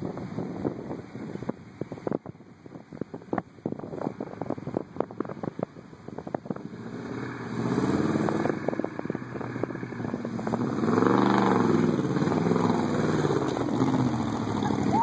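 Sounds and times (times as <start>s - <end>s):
truck engine revving: 6.6s - 15.0s.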